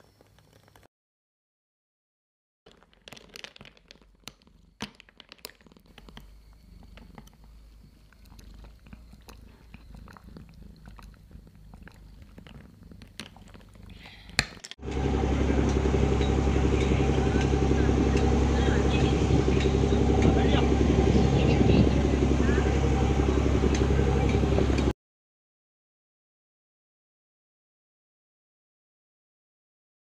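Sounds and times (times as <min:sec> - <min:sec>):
boat engine drone: 0:14.8 - 0:24.9
low swishing rumble: 0:14.8 - 0:24.9.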